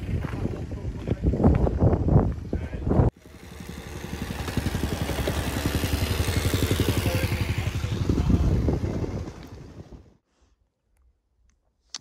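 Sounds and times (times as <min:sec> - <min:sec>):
engine running with rapid beat: 0:03.2 - 0:10.0.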